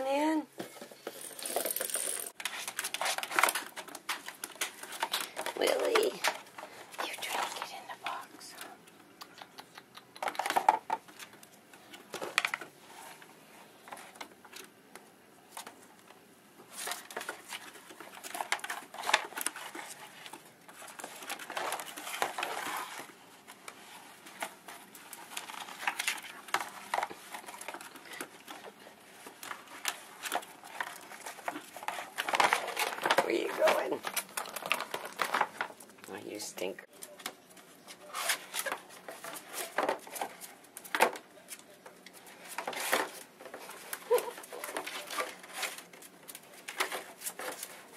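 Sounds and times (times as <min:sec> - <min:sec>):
claws clicking and scratching: 0:01.0 - 0:47.9
rustling cardboard: 0:02.4 - 0:07.0, 0:16.6 - 0:35.9, 0:36.9 - 0:47.9.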